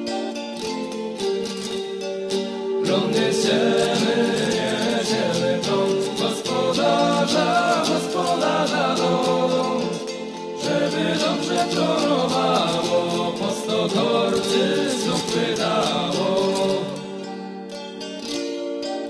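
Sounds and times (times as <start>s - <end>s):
rhythmic instrumental accompaniment: 0.0s - 19.0s
group singing folk song: 2.8s - 17.5s.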